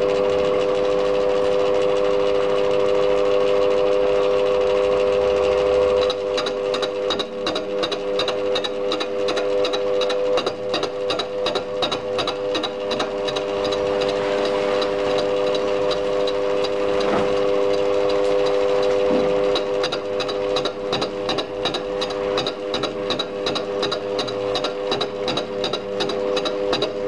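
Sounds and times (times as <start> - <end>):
metal lathe whining: 0.0 - 27.0
cutter tool ticking on metal: 5.9 - 18.7, 19.5 - 27.0.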